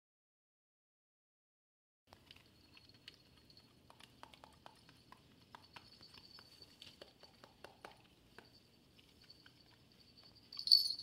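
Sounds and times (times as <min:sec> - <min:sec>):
dogs licking clicks: 0:02.1 - 0:10.7
small collar bells tinkling: 0:05.5 - 0:07.6, 0:08.4 - 0:11.0.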